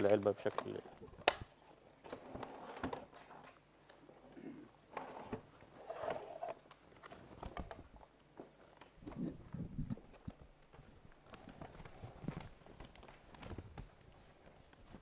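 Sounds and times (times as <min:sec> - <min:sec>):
small box clicks and rustles: 0:00.0 - 0:04.0, 0:10.0 - 0:15.0.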